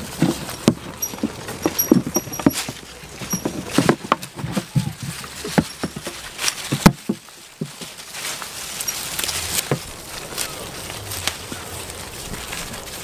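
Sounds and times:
leaves rustling and tearing: 0.0s - 0.9s, 4.2s - 13.0s
goats chewing leaves: 0.0s - 13.0s.

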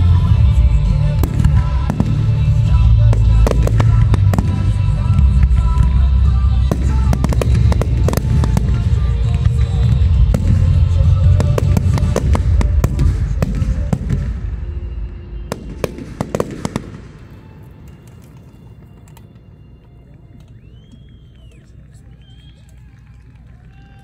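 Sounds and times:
deep rumble: 0.0s - 19.0s
fireworks bursting and crackling: 0.0s - 22.6s.

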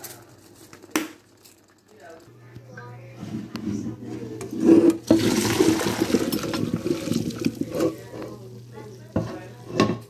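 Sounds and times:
water splashing into colander: 5.1s - 8.1s.

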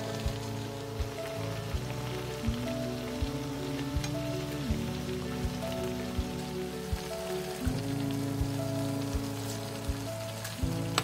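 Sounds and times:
background music with soft beat: 0.0s - 11.0s
food boiling in a frying pan: 0.0s - 11.0s.

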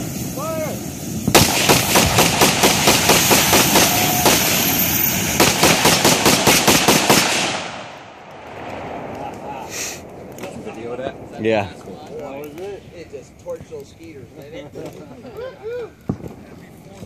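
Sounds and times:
rapid gunfire: 1.3s - 8.0s.

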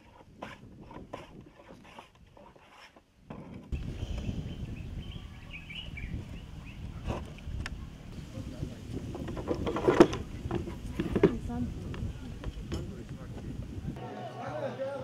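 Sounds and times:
hand plane on wood: 0.0s - 3.0s
birds chirping: 3.8s - 8.2s.

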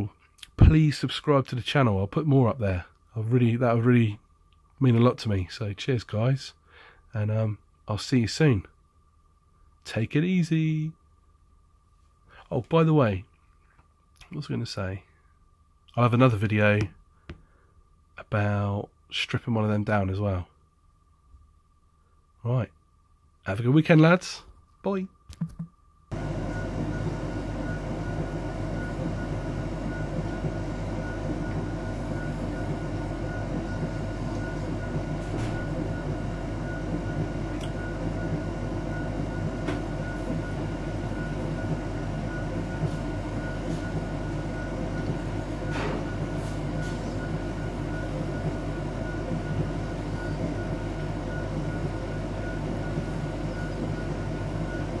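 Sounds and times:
tumble dryer humming: 26.1s - 55.0s.

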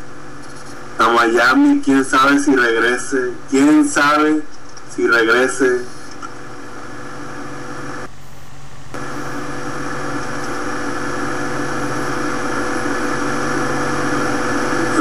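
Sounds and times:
humming drone of held tones: 6.7s - 15.0s.

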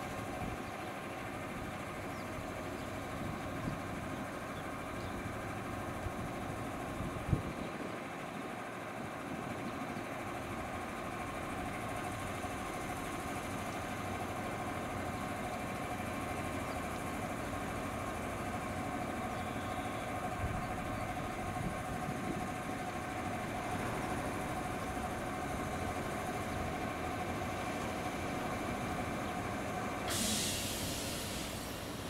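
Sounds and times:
electric train equipment humming: 10.0s - 32.0s.

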